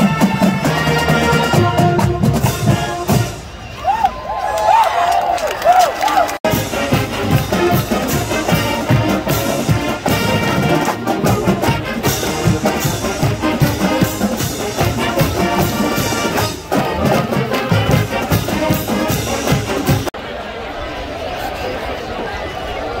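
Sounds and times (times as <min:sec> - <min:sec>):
steady drum beat: 0:00.0 - 0:03.5, 0:06.4 - 0:20.1
marching band brass: 0:00.0 - 0:04.0, 0:05.7 - 0:20.2.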